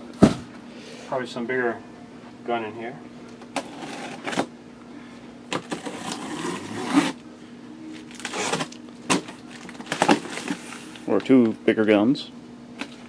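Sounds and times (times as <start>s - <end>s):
plastic crinkle: 7.9s - 11.3s.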